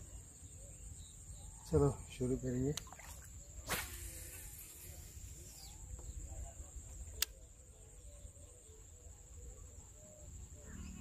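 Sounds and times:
fishing rod swish: 3.6s - 4.5s
sharp click: 7.2s - 7.4s.

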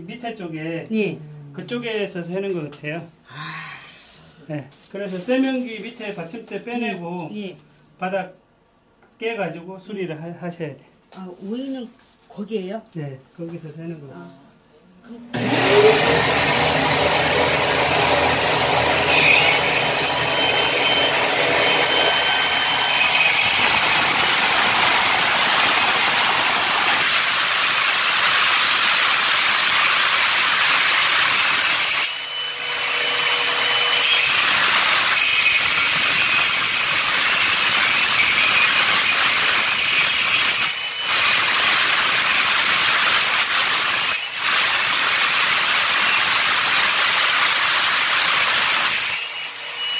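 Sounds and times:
power tool with vacuum running: 15.3s - 49.9s.

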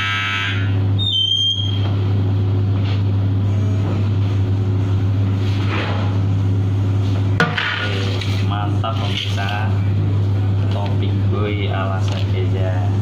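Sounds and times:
buzzing tone: 0.0s - 5.4s
oven and extractor hum: 0.0s - 13.0s
oven door squeak: 1.0s - 1.9s.

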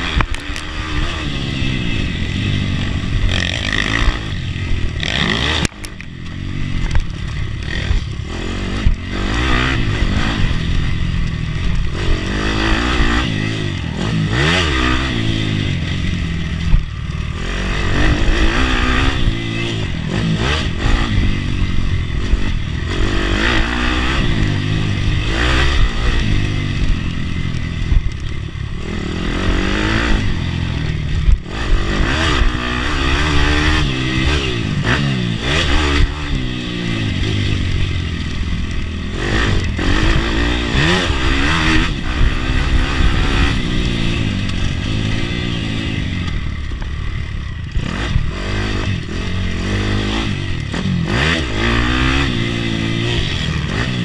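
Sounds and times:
motorbike engine revving: 0.0s - 54.0s.

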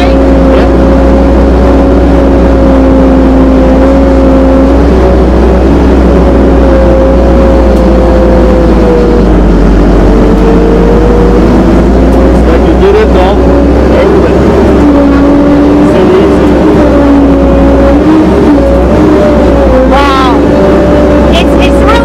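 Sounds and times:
drivetrain whine: 0.0s - 22.0s
engine drone: 0.0s - 22.0s.

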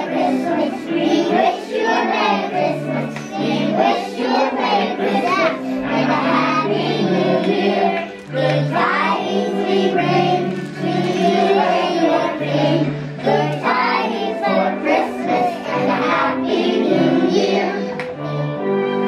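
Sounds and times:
children singing: 0.0s - 19.0s
music accompaniment: 0.0s - 19.0s.

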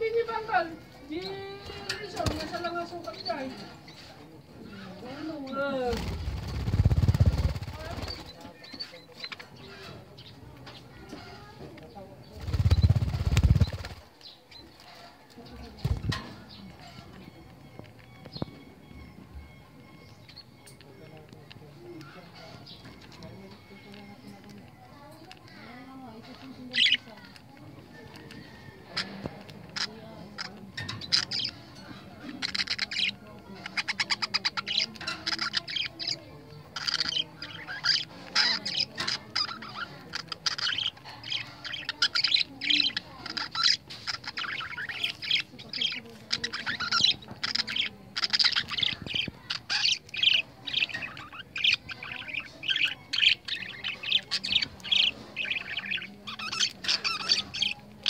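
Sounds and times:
budgerigars chirping: 5.9s - 11.5s, 12.2s - 15.0s, 26.5s - 27.2s, 28.4s - 58.0s.

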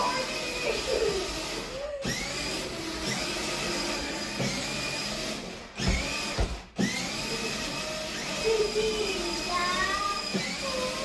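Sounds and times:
small electric motors whirring: 0.0s - 11.0s
thump: 5.8s - 6.7s.

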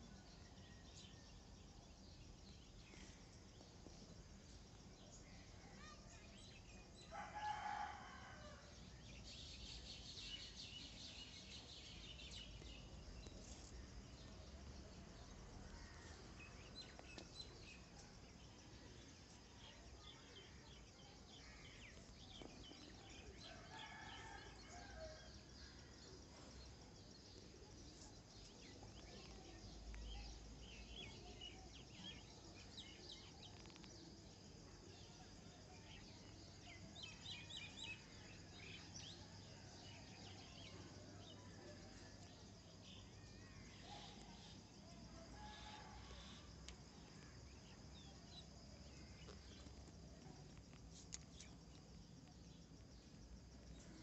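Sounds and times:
small birds chirping: 9.5s - 24.4s, 26.2s - 54.0s.

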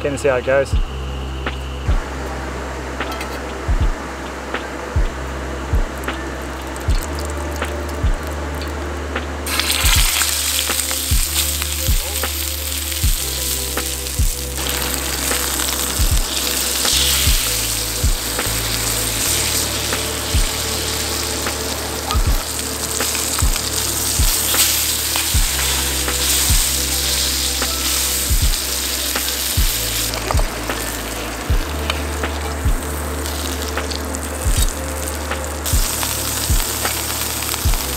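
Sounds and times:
background music with beat: 0.0s - 37.9s
steak sizzling in pan: 9.4s - 37.9s.

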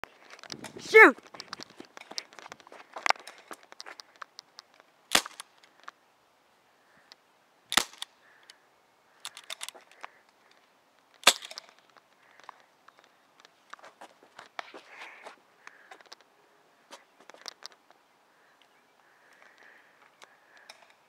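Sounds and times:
airsoft pistol shots: 5.1s - 5.4s, 7.7s - 8.1s.

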